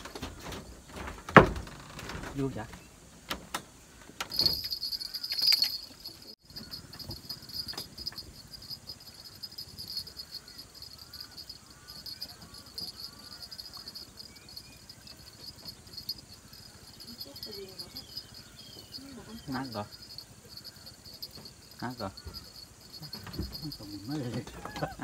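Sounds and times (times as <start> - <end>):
loud knocks and rustles: 0.0 - 2.5
insects shrilling: 4.3 - 25.0.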